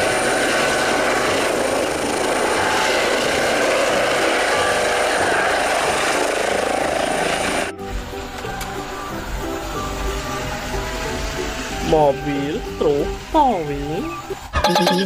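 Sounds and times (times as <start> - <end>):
helicopter hovering: 0.0 - 15.0.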